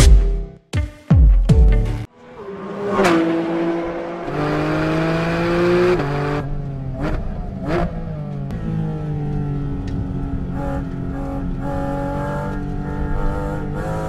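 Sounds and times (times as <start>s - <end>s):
car engine revving hard: 2.2s - 8.0s, 10.5s - 14.0s.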